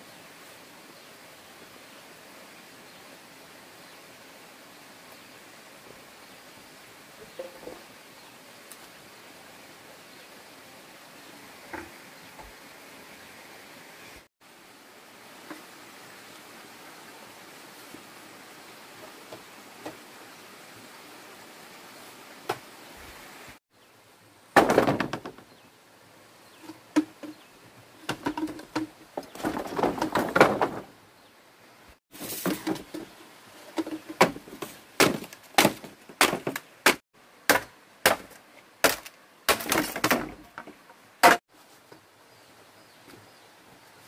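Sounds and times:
bamboo poles knocking: 0:07.4 - 0:07.8, 0:26.6 - 0:27.4, 0:28.0 - 0:30.8, 0:33.7 - 0:41.4
machete chopping bamboo: 0:35.0 - 0:40.4.

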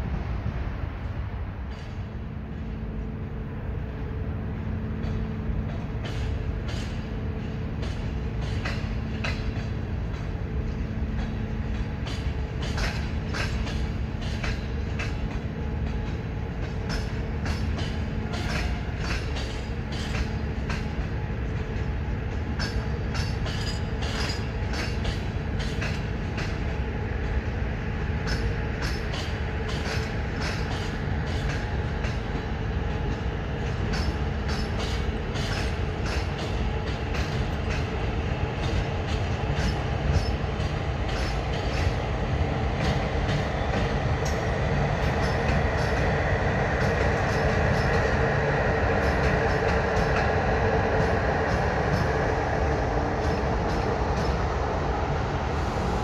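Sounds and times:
train wheels rumbling on rails: 0:00.0 - 0:56.0
wheels clicking over rail joints: 0:05.0 - 0:26.7, 0:28.2 - 0:42.1.

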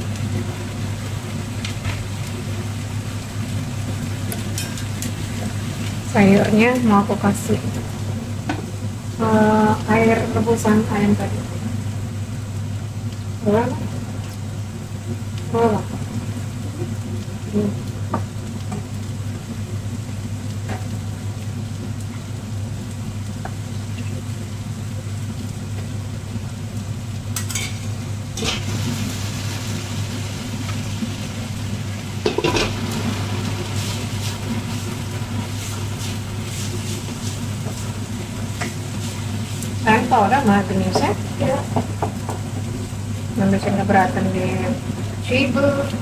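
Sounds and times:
steady low hum: 0:00.0 - 0:46.0
vegetables frying in pans: 0:00.0 - 0:46.0
utensils clinking against pans: 0:04.3 - 0:05.1, 0:27.4 - 0:28.6, 0:32.2 - 0:32.8.

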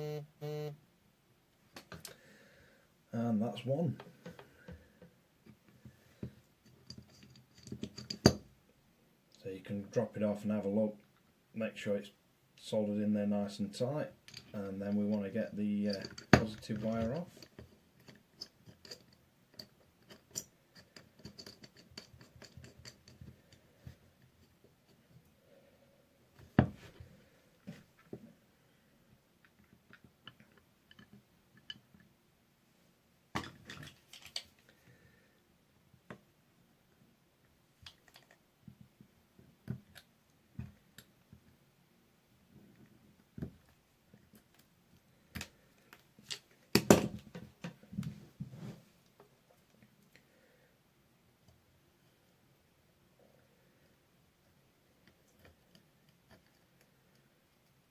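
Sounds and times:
small clicks and scratches: 0:06.6 - 0:08.4, 0:15.9 - 0:25.2, 0:37.8 - 0:38.9, 0:55.0 - 0:57.9.

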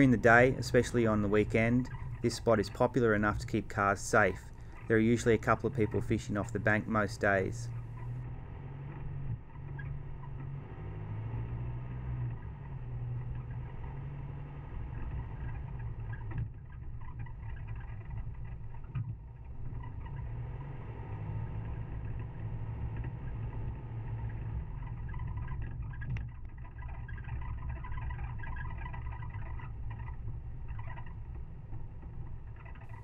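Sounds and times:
tyres rolling over dirt: 0:00.0 - 0:08.2
vehicle engine running: 0:00.0 - 0:33.0.

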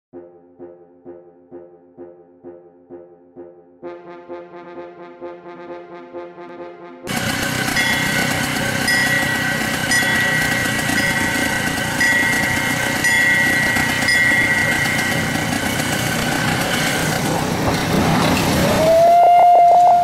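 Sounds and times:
steam locomotive rumbling: 0:07.1 - 0:20.0
thin high tone: 0:07.6 - 0:16.1.

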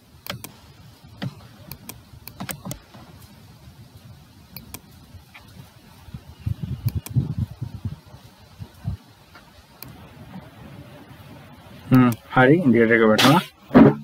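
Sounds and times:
computer mouse clicks: 0:00.2 - 0:00.5, 0:01.7 - 0:02.8, 0:04.6 - 0:04.8, 0:06.8 - 0:07.2.

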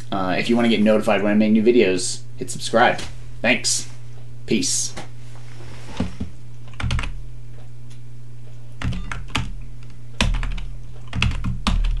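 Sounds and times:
steady low hum: 0:00.0 - 0:12.0
keyboard typing: 0:06.7 - 0:07.2, 0:08.8 - 0:12.0.

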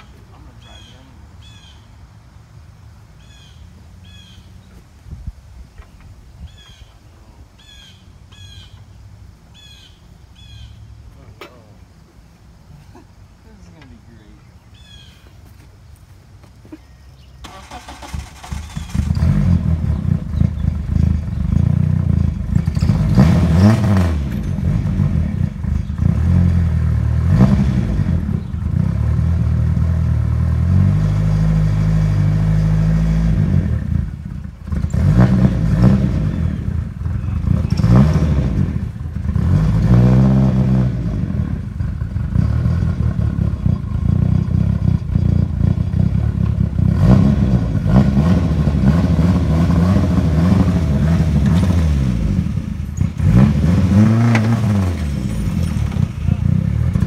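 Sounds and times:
car engine revving: 0:17.4 - 0:57.0.

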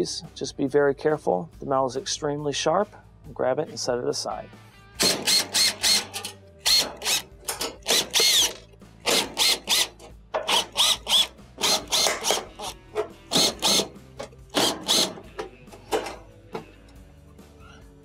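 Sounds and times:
cordless drill motor whine: 0:08.2 - 0:09.9.

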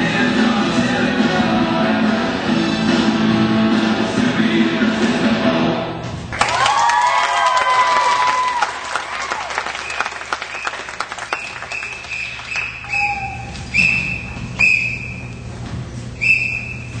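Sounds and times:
scattered applause: 0:06.3 - 0:13.5
short high-pitched whistle-like tones: 0:09.8 - 0:15.3, 0:16.2 - 0:17.0.

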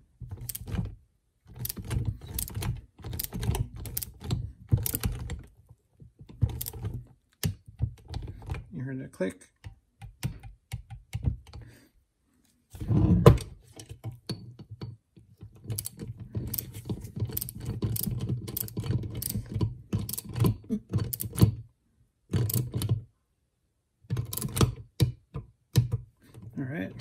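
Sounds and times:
hand ratchet clicking: 0:01.6 - 0:05.3.

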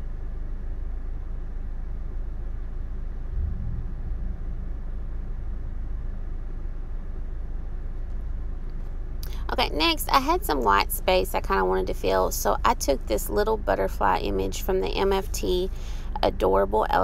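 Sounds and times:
low background rumble: 0:00.0 - 0:17.0
soft thump: 0:03.3 - 0:04.8.

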